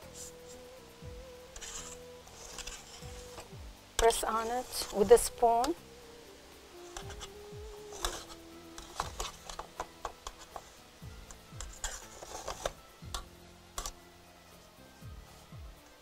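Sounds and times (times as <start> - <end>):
soft background music: 0.0 - 16.0
spoon scraping crumbs in metal pan: 1.5 - 5.8, 6.8 - 14.0.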